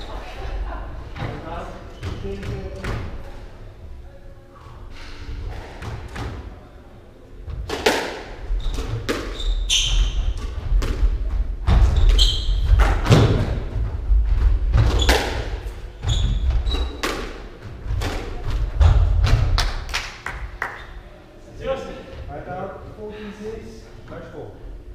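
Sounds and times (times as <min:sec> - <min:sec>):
squash ball knocks echoing: 0:07.5 - 0:15.8, 0:16.4 - 0:19.9
shoes squeaking on wooden floor: 0:08.5 - 0:10.6, 0:11.7 - 0:12.9, 0:15.9 - 0:17.0.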